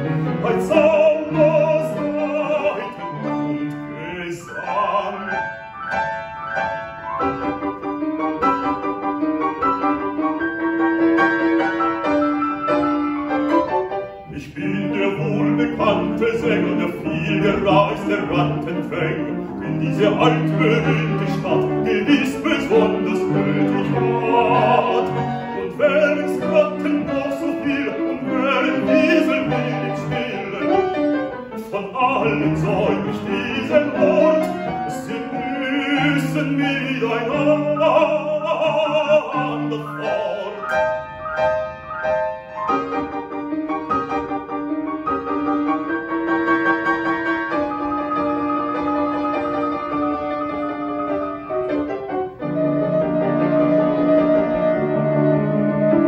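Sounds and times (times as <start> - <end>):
baritone singing classical song: 0.0 - 6.0, 14.0 - 41.6
grand piano accompaniment: 0.0 - 56.0.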